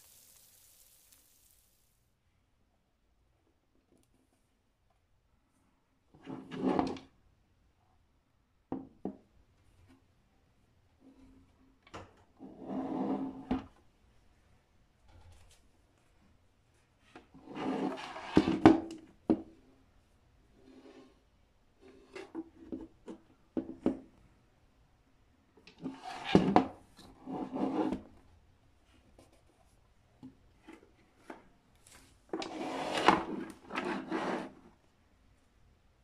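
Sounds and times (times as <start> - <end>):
metal case scraping on table: 32.4 - 34.6.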